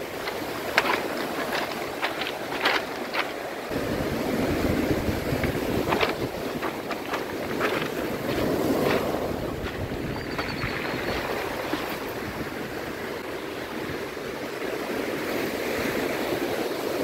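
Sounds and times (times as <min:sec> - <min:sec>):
pebbles clattering: 0:00.0 - 0:03.7, 0:05.3 - 0:12.2
wind buffeting microphone: 0:00.0 - 0:14.1
surf washing over pebbles: 0:00.0 - 0:17.0.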